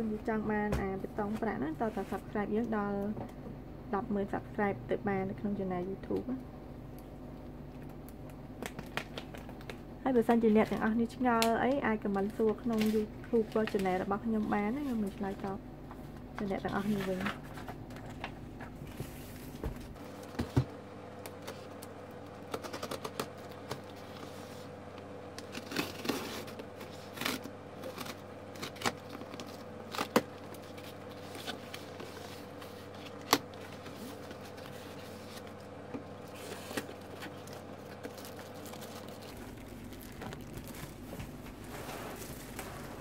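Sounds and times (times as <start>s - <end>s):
cardboard tearing: 25.5s - 32.0s
plastic wrap crinkling: 36.2s - 43.0s.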